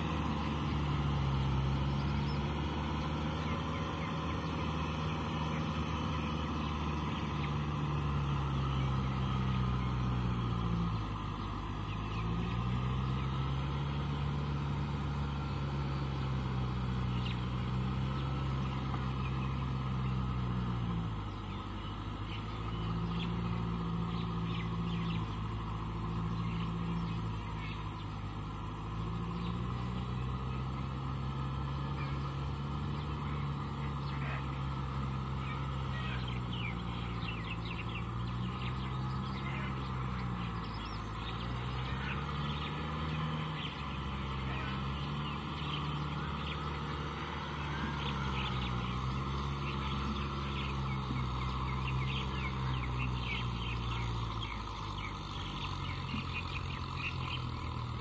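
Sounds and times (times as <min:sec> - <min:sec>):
tractor diesel engine: 0:00.0 - 0:58.0
high bird chirps: 0:17.0 - 0:58.0.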